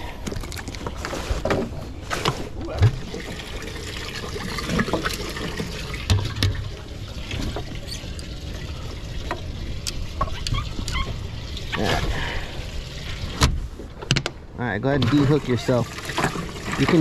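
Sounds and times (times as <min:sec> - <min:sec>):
water running and trickling: 0:02.8 - 0:13.9, 0:15.0 - 0:17.0.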